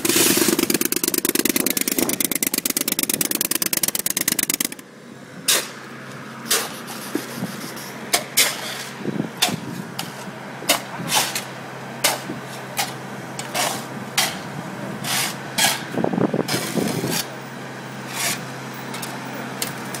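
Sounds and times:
engine running: 0:00.0 - 0:20.0
shovels scraping into dirt: 0:05.4 - 0:05.8, 0:06.4 - 0:17.3, 0:18.1 - 0:18.4.

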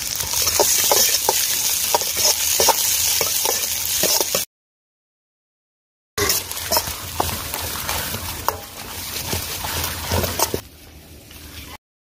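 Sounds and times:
chillies sizzling in hot oil: 0:00.0 - 0:04.5, 0:06.2 - 0:11.7
ladle scraping and clinking wok: 0:00.0 - 0:04.5, 0:06.2 - 0:10.6.

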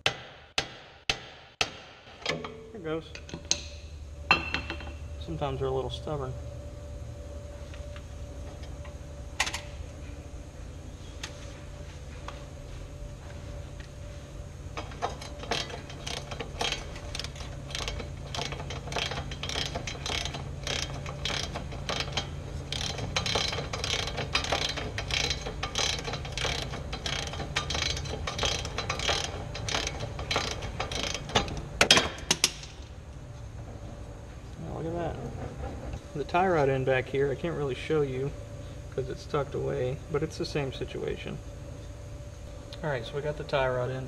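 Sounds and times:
ratchet wrench clicking: 0:14.8 - 0:32.7.

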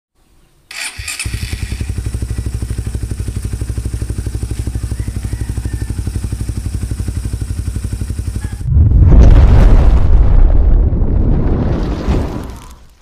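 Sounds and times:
motorcycle engine cranking: 0:00.7 - 0:05.7
motorcycle engine idling: 0:00.7 - 0:08.7.

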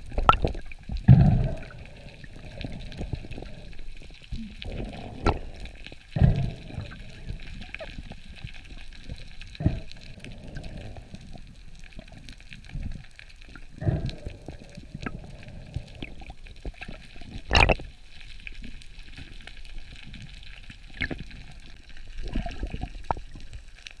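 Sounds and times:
muffled underwater noise: 0:01.0 - 0:17.9.

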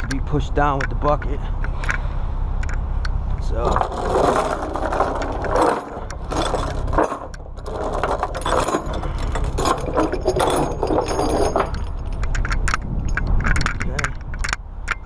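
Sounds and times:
steady low rumble: 0:00.0 - 0:15.0
chains scraping on wood: 0:03.6 - 0:14.4
chains rattling and clinking: 0:03.6 - 0:15.0.

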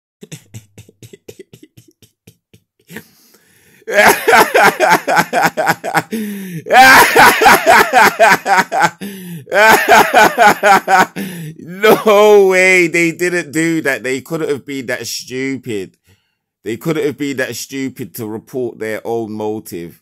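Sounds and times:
man laughing: 0:00.2 - 0:03.3, 0:03.9 - 0:12.7.

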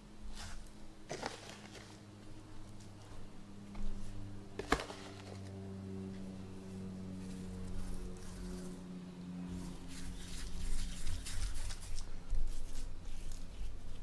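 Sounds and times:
steady low hum: 0:00.0 - 0:14.0
dry rub pattering onto ribs: 0:09.6 - 0:14.0.

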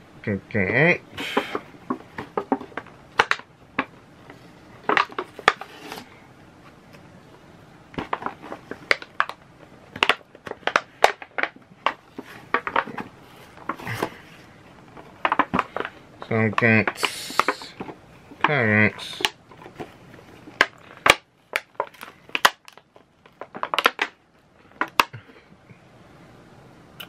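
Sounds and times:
packaging crinkling and clicking: 0:01.4 - 0:04.0, 0:04.8 - 0:06.1, 0:07.9 - 0:25.2.

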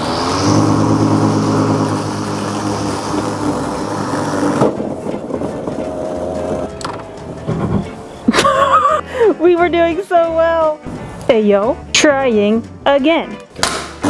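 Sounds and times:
electric lawnmower cutting grass: 0:00.0 - 0:06.8.

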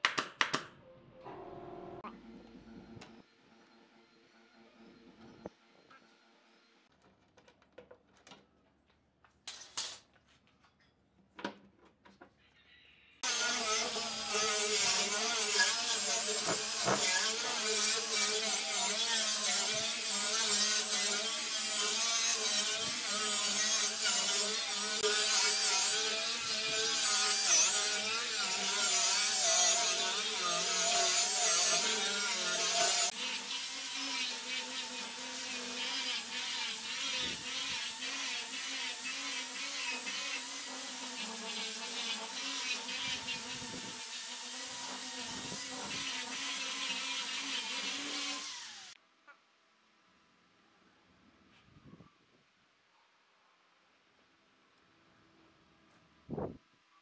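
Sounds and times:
angle grinder sanding wood: 0:13.2 - 0:49.0.

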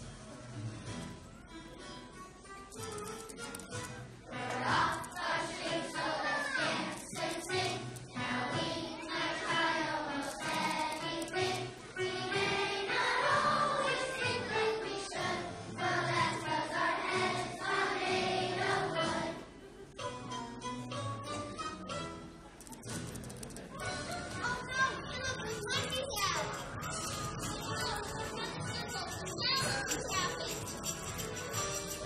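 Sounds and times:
children's choir singing: 0:04.3 - 0:19.6, 0:25.4 - 0:32.0
musical accompaniment: 0:06.8 - 0:24.5, 0:25.1 - 0:32.0.

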